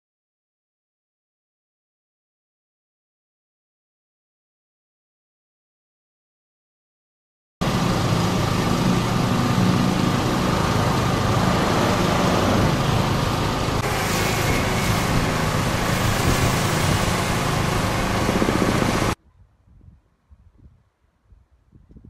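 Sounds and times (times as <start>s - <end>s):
engine idling: 7.6s - 19.2s
hiss: 13.8s - 17.7s.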